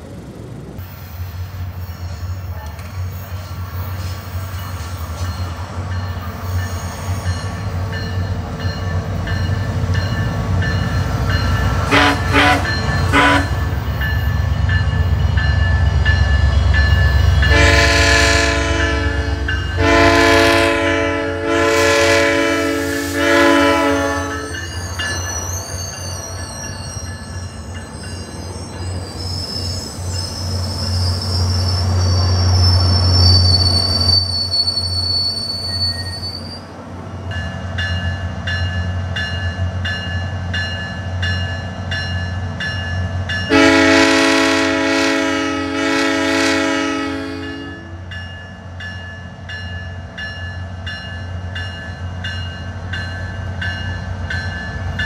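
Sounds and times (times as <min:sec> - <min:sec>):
train rumbling: 0:00.0 - 0:55.0
high squeal from wheels: 0:00.8 - 0:18.4, 0:22.7 - 0:36.8
train horn blasts: 0:11.8 - 0:13.8, 0:17.3 - 0:24.7, 0:43.5 - 0:48.1.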